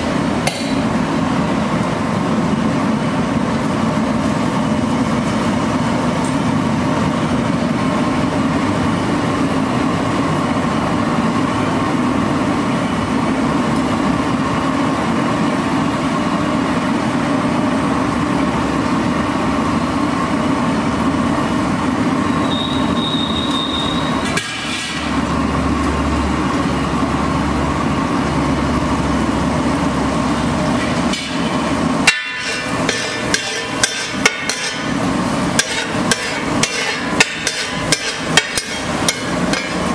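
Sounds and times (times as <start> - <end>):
steel spatula scraping iron griddle: 24.2 - 25.1, 32.1 - 35.0, 35.6 - 39.8.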